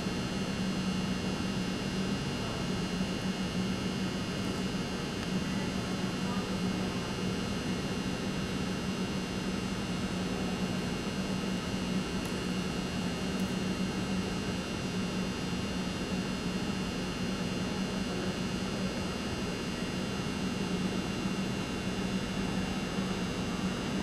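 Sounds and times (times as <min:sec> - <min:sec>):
indoor arena hum and hiss: 0:00.0 - 0:24.0.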